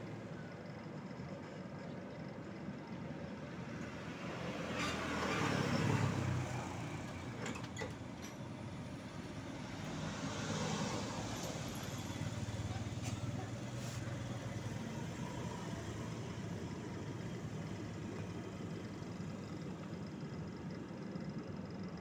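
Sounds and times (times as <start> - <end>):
vehicle passing: 9.6 - 14.0.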